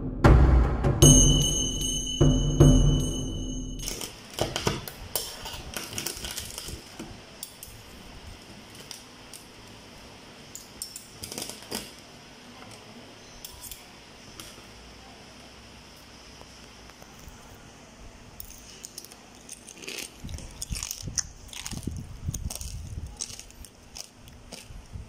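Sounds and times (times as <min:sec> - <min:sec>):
crispy food crackling: 0:03.8 - 0:10.2, 0:18.6 - 0:25.0.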